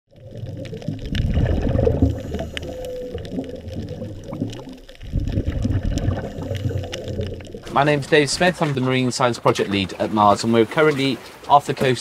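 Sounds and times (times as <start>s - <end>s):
underwater bubbling and gurgling: 0.1s - 8.8s.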